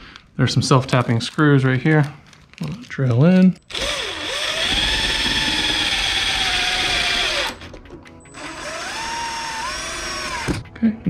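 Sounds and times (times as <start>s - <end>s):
impact driver whining: 3.7s - 10.7s.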